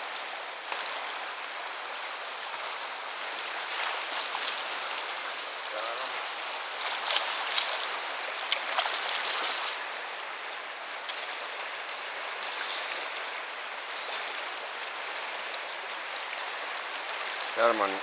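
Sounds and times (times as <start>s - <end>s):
fast river current flowing: 0.0s - 18.0s
fish splashing in net: 6.8s - 9.7s.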